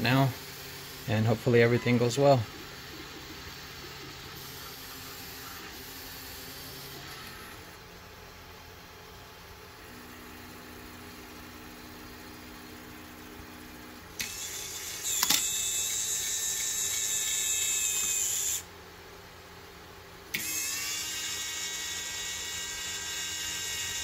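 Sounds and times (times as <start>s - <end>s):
actuator motor whining: 0.0s - 7.8s, 9.8s - 18.7s.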